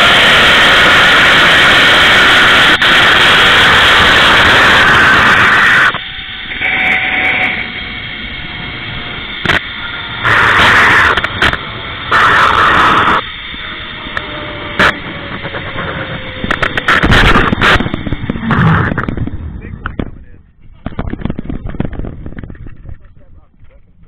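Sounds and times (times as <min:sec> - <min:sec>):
pulley whining on cable: 0:00.0 - 0:19.5
wind gusts on microphone: 0:14.7 - 0:24.0.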